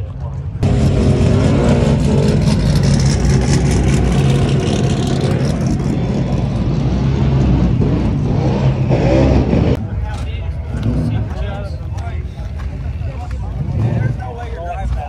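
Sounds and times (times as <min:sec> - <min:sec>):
car engine at high revs: 0:00.6 - 0:09.8.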